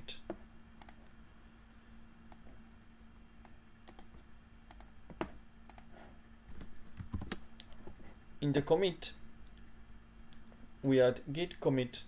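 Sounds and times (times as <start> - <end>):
faint steady hum: 0.0 - 12.0
computer mouse and keyboard clicks: 0.8 - 1.1, 3.4 - 4.9, 5.7 - 5.9, 6.5 - 8.0.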